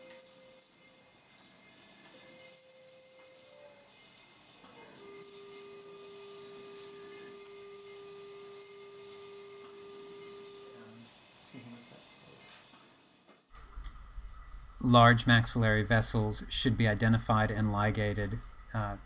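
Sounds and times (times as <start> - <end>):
electrosurgical activation tone: 0.0 - 12.0
faint hiss: 0.0 - 19.0.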